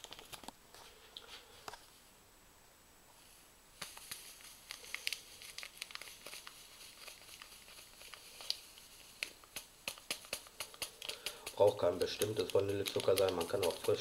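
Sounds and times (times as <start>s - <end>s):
paper sachet crinkling: 3.8s - 14.0s
sugar pouring: 3.9s - 14.0s.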